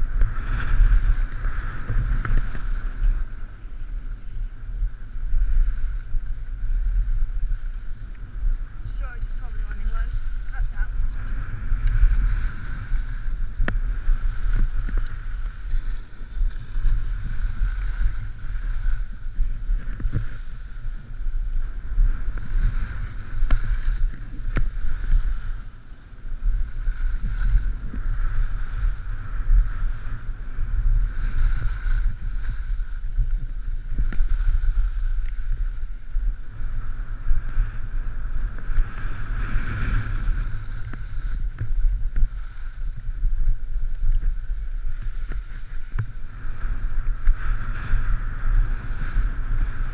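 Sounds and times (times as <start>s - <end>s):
skis scraping over snow: 0.0s - 49.9s
wind rushing over microphone: 0.0s - 49.9s.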